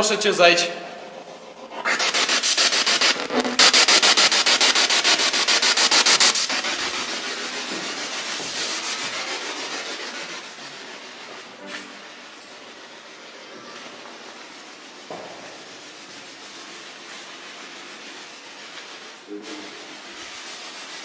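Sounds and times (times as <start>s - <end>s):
chopping radio static: 2.9s - 3.9s.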